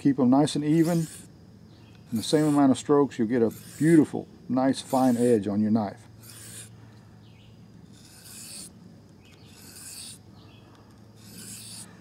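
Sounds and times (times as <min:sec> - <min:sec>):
knife scraping on whetstone: 0:00.7 - 0:01.3, 0:02.0 - 0:02.8, 0:03.4 - 0:05.4, 0:06.2 - 0:06.7, 0:07.9 - 0:10.2, 0:11.2 - 0:12.0.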